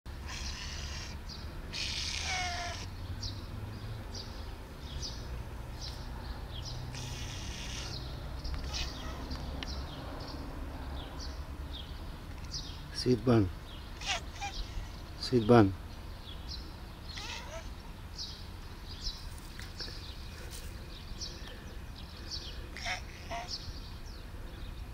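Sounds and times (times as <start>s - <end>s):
cat meowing: 0.2s - 2.9s, 6.9s - 8.0s, 8.6s - 9.4s, 14.0s - 15.0s, 17.1s - 17.8s, 22.8s - 23.6s.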